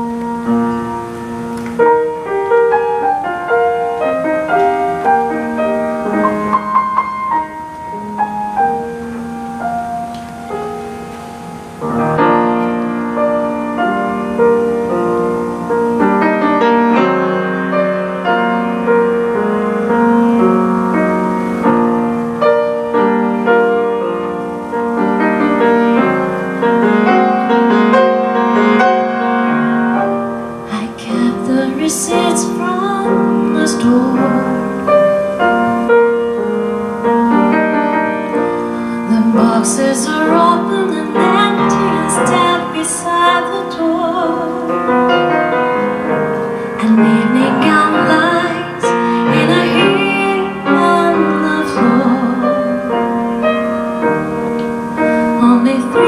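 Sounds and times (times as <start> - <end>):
grand piano accompaniment: 0.0 - 56.0
woman singing: 30.7 - 35.2, 39.0 - 44.9, 46.6 - 53.0, 55.2 - 56.0.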